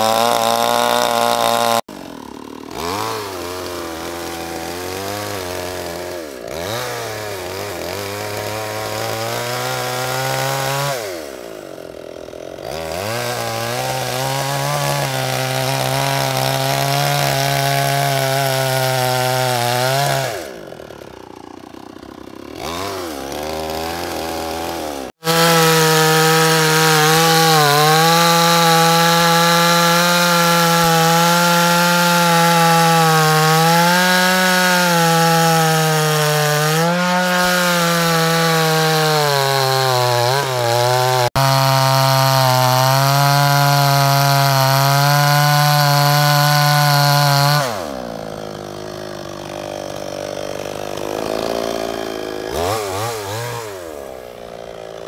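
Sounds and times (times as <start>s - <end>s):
chainsaw cutting log: 0.0s - 55.0s.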